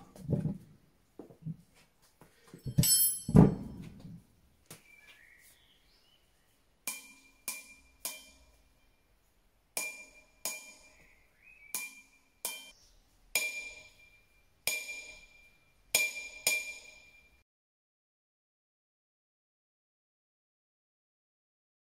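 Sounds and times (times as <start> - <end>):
hammer striking anvil: 2.7 - 3.8, 6.9 - 8.6, 9.8 - 11.1, 11.8 - 12.8, 13.4 - 17.4.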